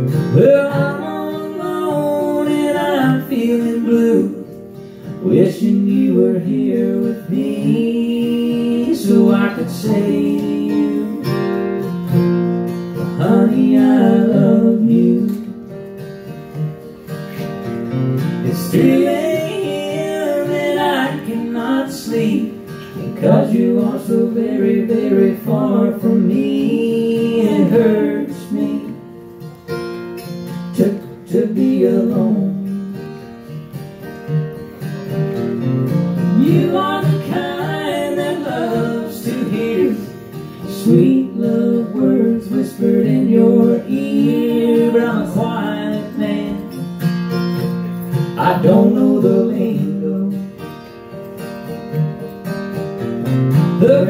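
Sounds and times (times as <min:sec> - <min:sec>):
acoustic guitar strumming: 0:00.0 - 0:54.0
person singing: 0:00.2 - 0:04.6, 0:05.2 - 0:11.6, 0:13.1 - 0:15.6, 0:18.4 - 0:29.1, 0:36.3 - 0:46.8, 0:48.4 - 0:50.6, 0:53.8 - 0:54.0.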